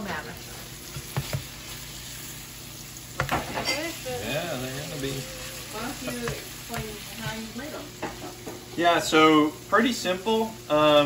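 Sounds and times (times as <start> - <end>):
squash sizzling in butter: 0.0 - 11.0
utensil clacking against pan: 6.0 - 8.6.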